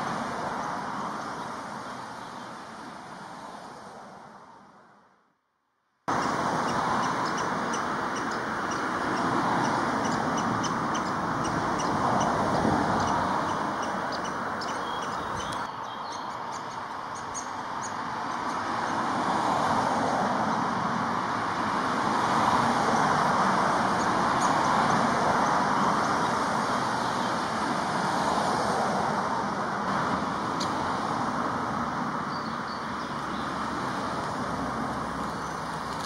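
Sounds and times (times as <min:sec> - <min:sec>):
distant road traffic hum: 0:00.0 - 0:36.0
high-pitched bird calls: 0:06.2 - 0:18.6.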